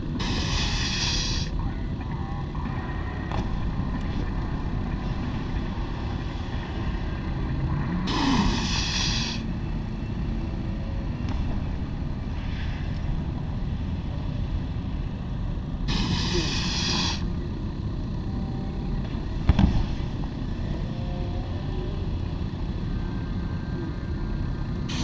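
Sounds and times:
airbag hiss: 0.2s - 1.6s, 8.1s - 9.5s, 15.9s - 17.3s.

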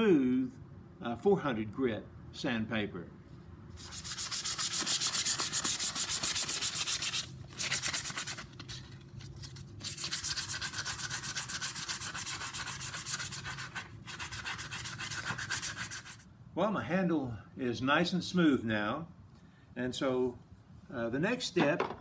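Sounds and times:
sandpaper rubbing on wood: 3.8s - 16.2s.

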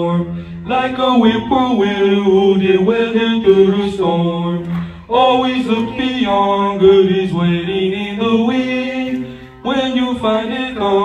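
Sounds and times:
boys' choir singing: 0.0s - 11.0s.

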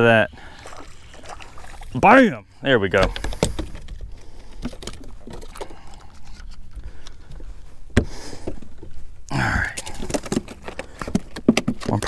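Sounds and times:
fishing tackle clicks and knocks: 3.0s - 7.5s, 9.8s - 12.0s.

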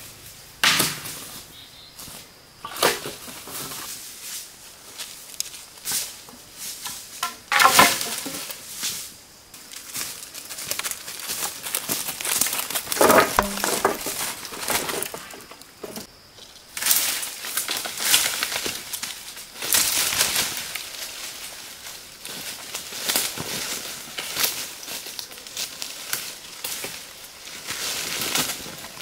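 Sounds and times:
rustling and crunching: 0.0s - 29.0s.

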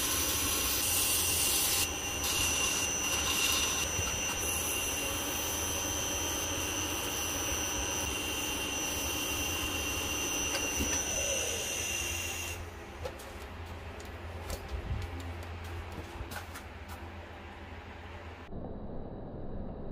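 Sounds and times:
wood lathe whining: 0.0s - 12.7s.

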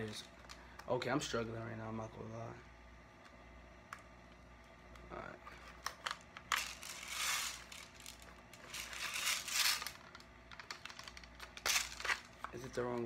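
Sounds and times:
plastic rustling scrapes: 6.5s - 12.5s.

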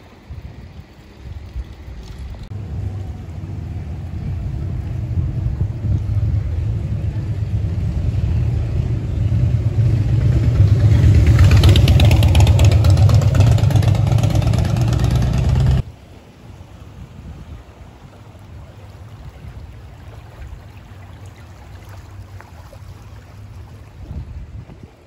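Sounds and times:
wind rumble on microphone: 0.0s - 25.0s
motorcycle engine approaching: 2.5s - 15.8s.

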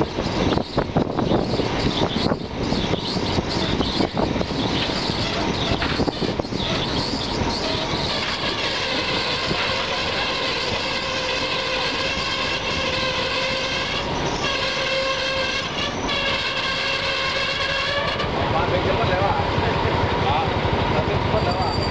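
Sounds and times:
train wheels rumbling on rails: 0.0s - 21.9s
train horn blast: 7.6s - 18.4s.

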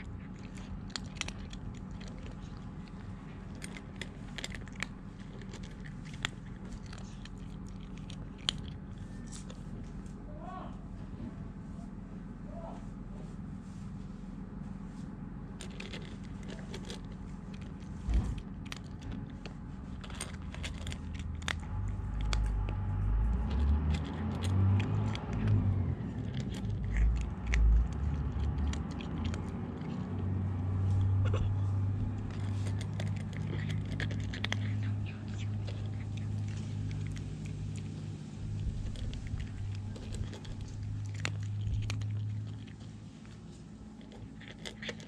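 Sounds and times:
kitten crunching dry kibble: 0.0s - 10.3s, 14.3s - 45.0s
low rumble: 0.0s - 44.9s
kibble clicking against metal bowl: 32.1s - 37.8s, 38.6s - 42.8s, 44.0s - 45.0s.

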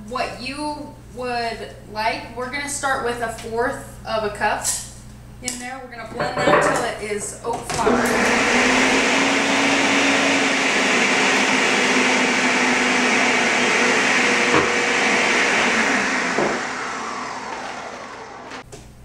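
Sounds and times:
blender motor grinding: 7.7s - 18.6s.

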